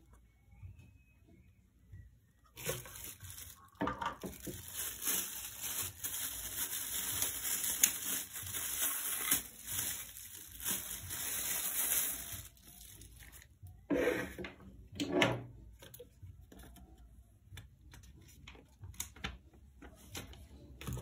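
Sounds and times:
plastic bag crinkling: 2.5 - 13.5.

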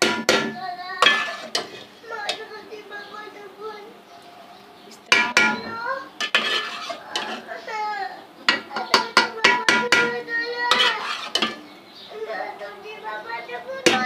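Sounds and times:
spoon knocking against metal pot: 0.0 - 1.7, 5.1 - 7.4, 8.5 - 11.6.

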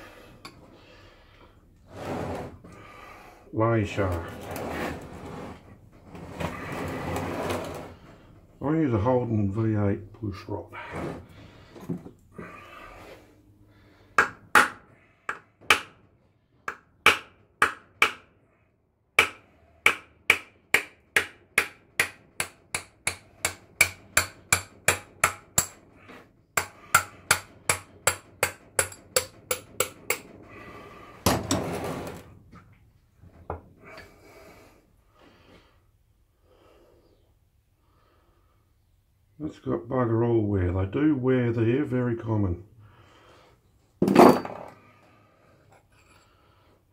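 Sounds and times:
hammer striking metal rod: 14.2 - 15.9, 16.7 - 18.2, 19.2 - 25.8, 26.6 - 30.3.

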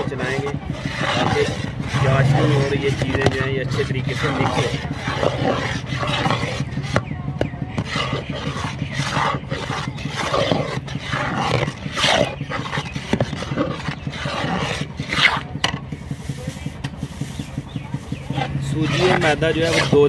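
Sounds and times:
low hum: 0.0 - 20.0
metal spoon scraping batter: 0.0 - 20.0.

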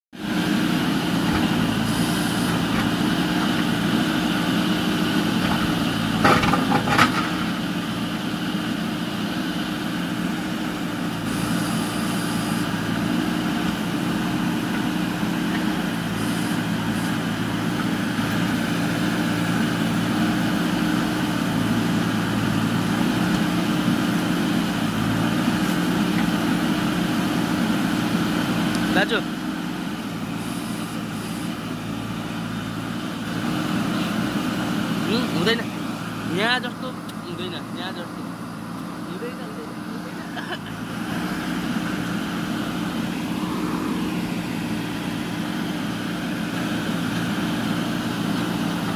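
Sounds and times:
diesel engine running: 0.1 - 48.9.

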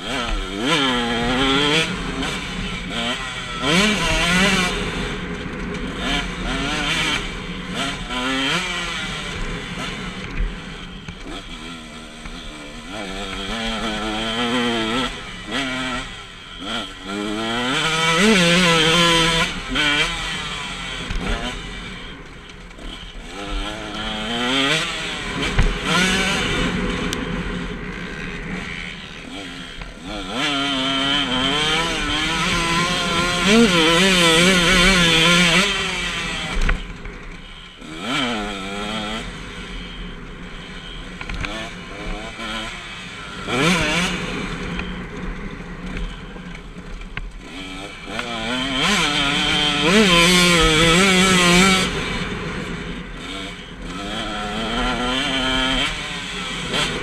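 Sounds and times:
motocross engine revving: 0.0 - 57.0.

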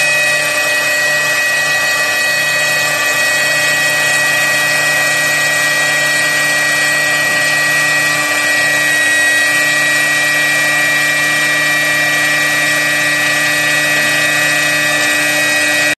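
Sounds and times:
router bit cutting wood: 0.0 - 16.0
router spindle whining: 0.0 - 16.0.

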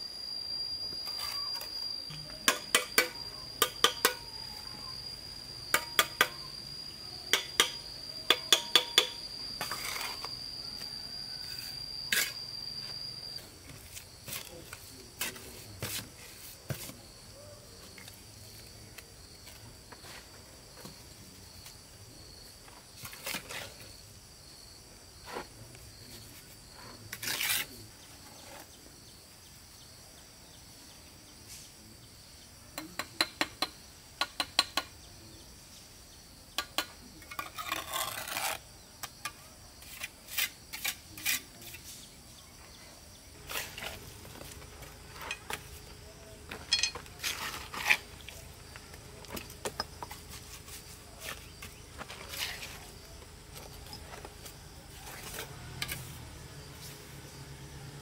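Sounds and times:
insects chirring: 0.0 - 58.0
scrape: 9.6 - 10.3, 11.4 - 12.9, 13.8 - 17.0, 23.0 - 24.0, 25.2 - 25.5, 26.1 - 28.8, 37.3 - 38.6, 39.8 - 45.8, 47.2 - 48.4, 50.3 - 52.9, 54.9 - 57.2.

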